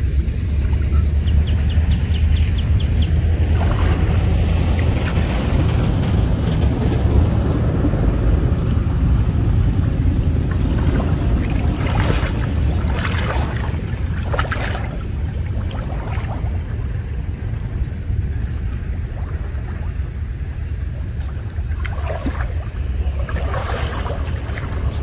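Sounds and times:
wind rumble on microphone: 0:00.0 - 0:25.0
water sloshing and splashing: 0:03.0 - 0:07.3, 0:10.0 - 0:25.0
short splashes: 0:03.4 - 0:05.7, 0:10.5 - 0:16.9, 0:21.2 - 0:25.0.

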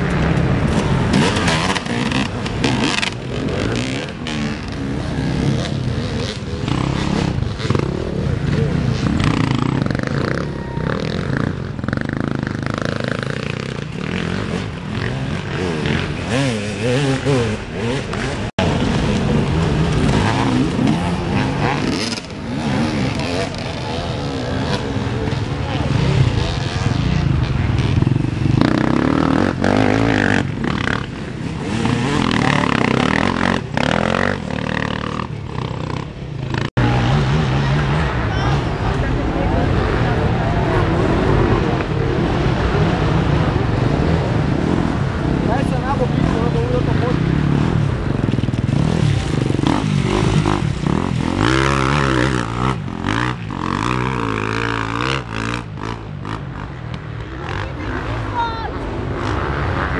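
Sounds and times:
motorcycle engines revving: 0:00.0 - 0:59.9.

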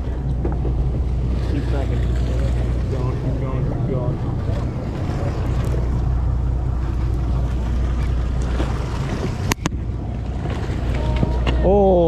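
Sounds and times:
boat engines humming: 0:00.0 - 0:12.0
water noise: 0:00.0 - 0:12.0
wind: 0:00.0 - 0:12.0.

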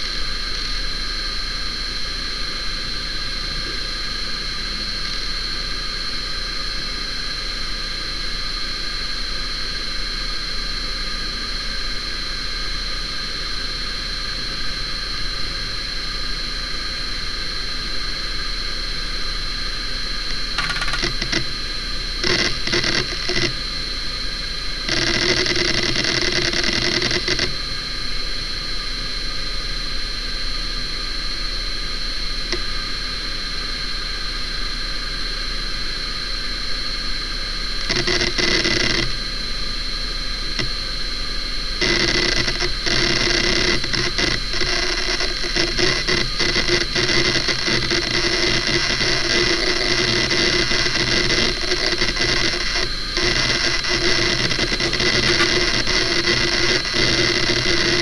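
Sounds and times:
hard drive spinning whine: 0:00.0 - 0:58.0
hard drive seek chatter: 0:19.5 - 0:27.8, 0:37.6 - 0:58.0.

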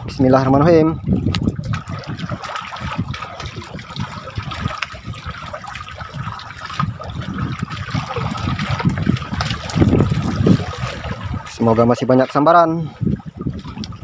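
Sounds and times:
water lapping against boat: 0:00.0 - 0:14.0.

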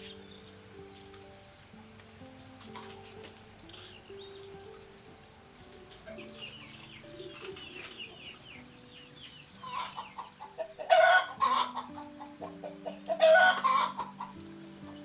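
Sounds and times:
chickens clucking: 0:00.0 - 0:15.0
hen cackling: 0:09.5 - 0:15.0.

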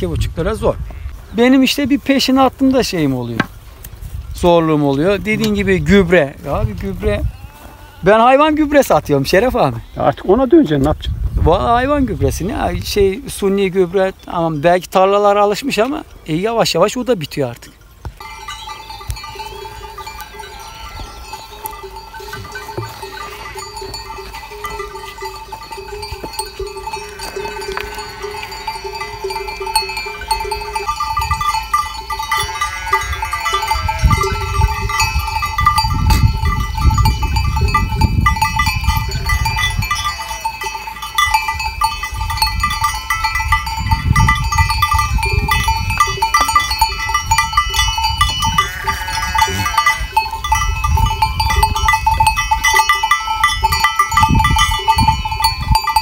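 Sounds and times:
animal bells ringing: 0:01.4 - 0:03.4, 0:11.8 - 0:56.0
sheep bleating: 0:07.2 - 0:08.6, 0:19.6 - 0:21.3, 0:26.8 - 0:29.2, 0:32.2 - 0:34.7, 0:47.8 - 0:50.2.

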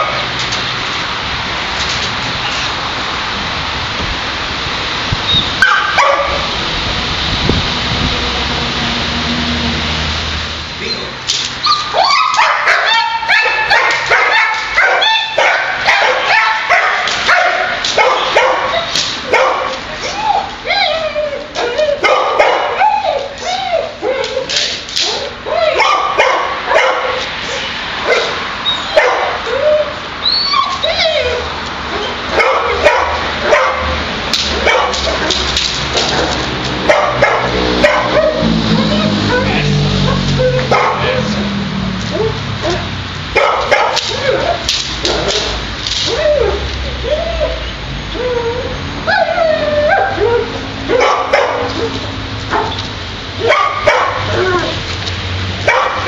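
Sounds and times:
dog barking rapidly: 0:05.6 - 0:06.5, 0:11.7 - 0:19.8, 0:22.0 - 0:23.0, 0:25.1 - 0:27.2, 0:28.0 - 0:29.5, 0:32.3 - 0:35.4, 0:36.1 - 0:38.5, 0:40.0 - 0:41.2, 0:42.2 - 0:46.6, 0:50.9 - 0:51.9, 0:52.5 - 0:52.8, 0:53.4 - 0:54.4, 0:55.6 - 0:56.0.

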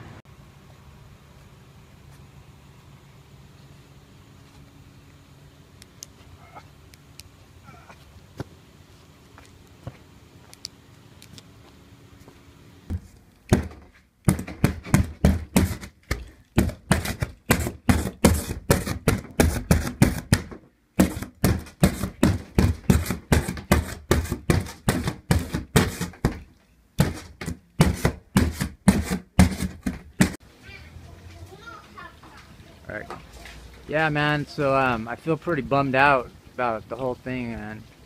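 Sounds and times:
rapid sharp knocks: 0:12.9 - 0:16.0, 0:16.6 - 0:26.4.

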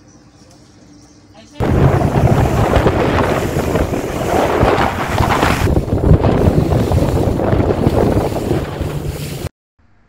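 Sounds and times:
water slapping against hull: 0:01.6 - 0:09.5
wind buffeting microphone: 0:01.6 - 0:09.5.

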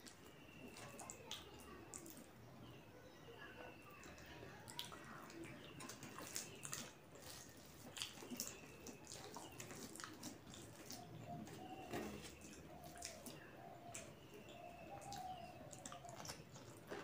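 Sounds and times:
chewing: 0:00.0 - 0:02.4, 0:03.6 - 0:17.0
fingers squishing rice: 0:04.0 - 0:17.0.

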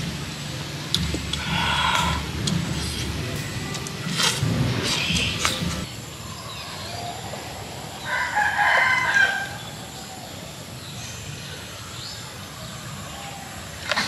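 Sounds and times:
rooster crowing: 0:08.0 - 0:09.8.

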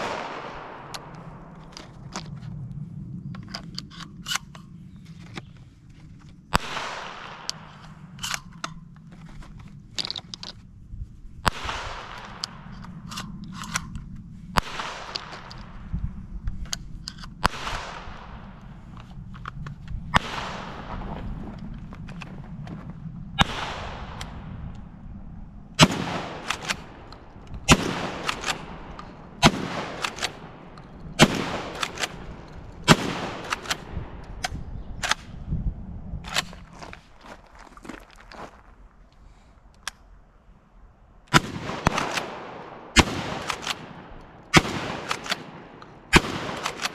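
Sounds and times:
shotgun shots: 0:00.0 - 0:01.4, 0:06.5 - 0:07.8, 0:11.4 - 0:12.7, 0:14.6 - 0:15.6, 0:17.4 - 0:18.5, 0:20.2 - 0:21.3, 0:23.4 - 0:24.6, 0:25.8 - 0:35.2, 0:41.3 - 0:46.9
echoing bangs: 0:00.0 - 0:02.1, 0:06.5 - 0:08.2, 0:11.4 - 0:13.0, 0:14.5 - 0:15.9, 0:17.4 - 0:19.0, 0:20.0 - 0:35.5, 0:41.3 - 0:46.9
gun loading clicks: 0:00.6 - 0:02.4, 0:03.3 - 0:06.4, 0:07.4 - 0:10.7, 0:12.1 - 0:14.3, 0:15.0 - 0:15.7, 0:18.5 - 0:20.0, 0:24.2 - 0:24.9, 0:26.2 - 0:35.4, 0:36.2 - 0:36.7, 0:39.8 - 0:40.1, 0:43.4 - 0:46.9.

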